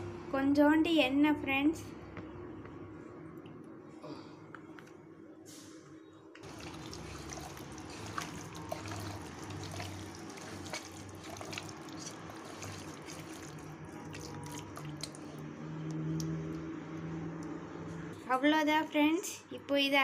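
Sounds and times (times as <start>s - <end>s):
hand squishing meat in marinade: 6.4s - 16.4s.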